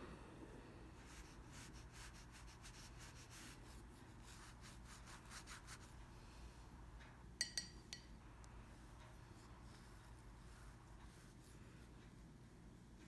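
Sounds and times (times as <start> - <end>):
low steady hum: 0.0 - 13.0
paintbrush rubbing on paper: 1.0 - 5.9, 9.3 - 11.6.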